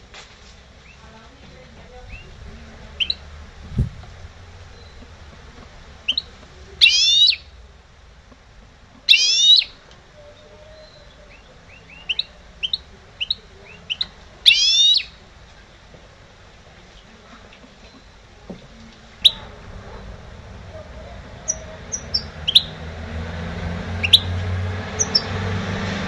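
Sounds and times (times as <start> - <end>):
bird singing trilled phrases: 2.1 - 3.3, 6.0 - 7.6, 9.0 - 15.2, 19.2 - 19.5, 21.3 - 22.8, 24.0 - 24.4, 25.0 - 25.4
high bird chirps: 2.1 - 3.3, 6.0 - 7.6, 9.0 - 15.2, 19.2 - 19.6, 20.7 - 23.0, 23.9 - 25.4.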